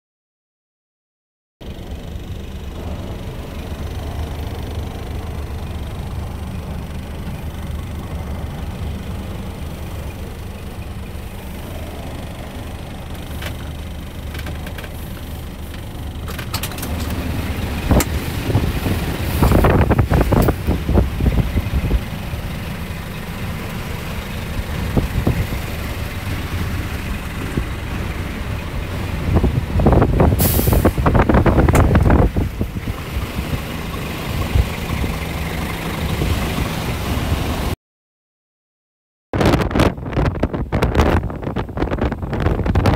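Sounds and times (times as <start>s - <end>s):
diesel engine idling: 1.6s - 37.8s
loud rumbling and knocking: 1.6s - 37.8s
brief sharp hiss: 30.4s - 31.0s.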